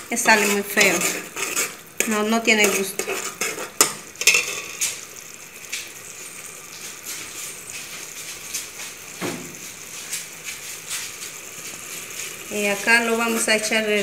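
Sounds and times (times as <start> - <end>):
faint sizzle: 0.0 - 14.0
metal ladle clinking on pot: 3.8 - 4.8.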